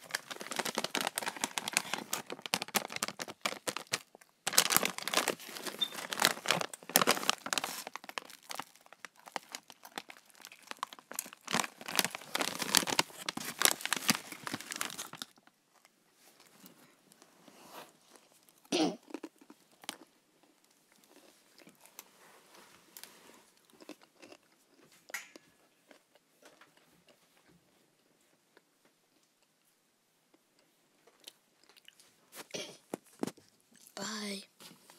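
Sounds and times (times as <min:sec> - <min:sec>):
snack bag crinkling: 0:00.0 - 0:16.7, 0:18.1 - 0:22.1.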